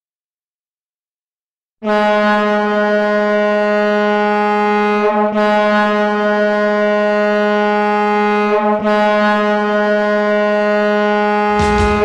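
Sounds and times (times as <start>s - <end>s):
goal horn blast: 1.8s - 7.2s, 8.4s - 12.0s.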